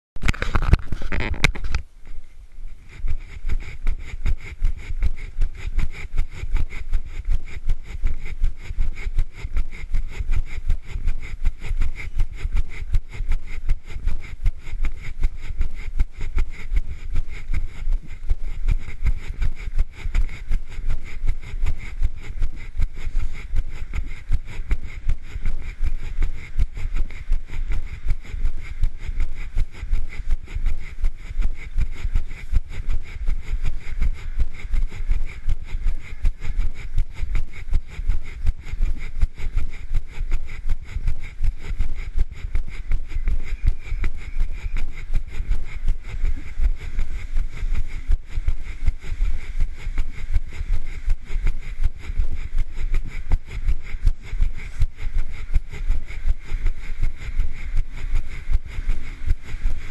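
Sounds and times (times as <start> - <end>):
camera handling noise: 0.2 - 1.9
wind rumble on microphone: 0.2 - 59.9.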